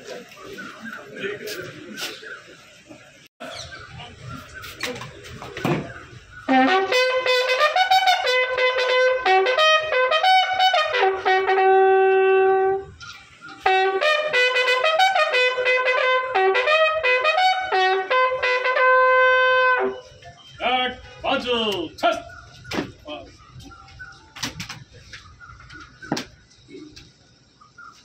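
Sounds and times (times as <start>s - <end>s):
bugle call: 6.5s - 12.9s, 13.6s - 20.1s.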